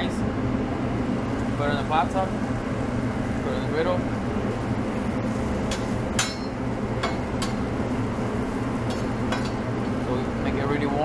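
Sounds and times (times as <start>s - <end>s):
low kitchen hum: 0.0s - 11.0s.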